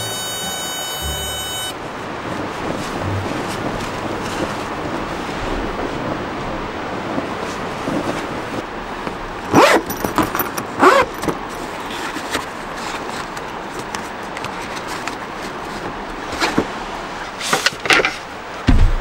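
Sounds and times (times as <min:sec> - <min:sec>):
strong wind: 0:01.8 - 0:17.5, 0:18.2 - 0:19.0
nylon fabric rustling: 0:02.2 - 0:08.6
zipper pulls: 0:09.5 - 0:09.9, 0:10.8 - 0:11.2.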